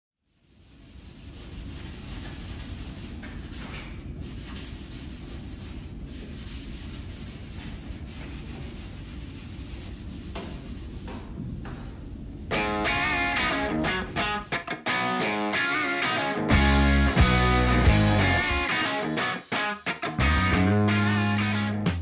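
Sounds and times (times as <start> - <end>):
scouring pad rubbing sheet metal: 0.3 - 11.2, 12.5 - 14.8.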